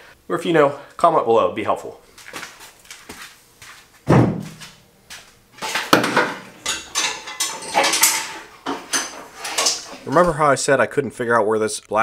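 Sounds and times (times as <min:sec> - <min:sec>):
clattering and rustling: 0:02.2 - 0:10.3
sharp knock: 0:04.1 - 0:04.6.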